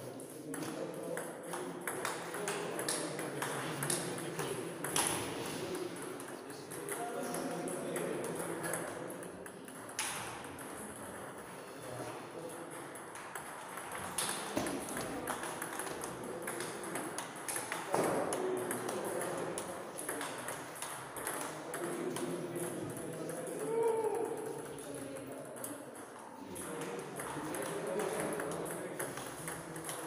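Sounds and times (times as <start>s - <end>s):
table tennis ball hits: 0.5s - 5.4s, 9.6s - 11.3s, 12.6s - 25.7s.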